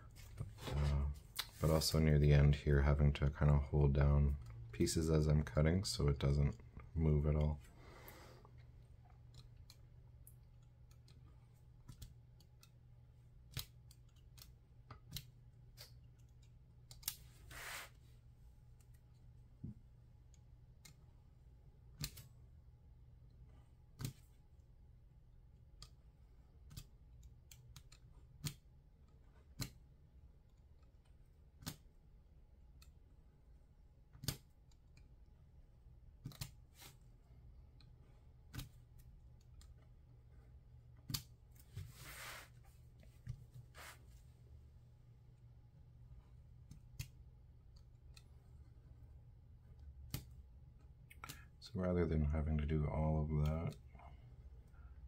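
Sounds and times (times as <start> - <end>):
low steady hum: 0.0 - 55.0.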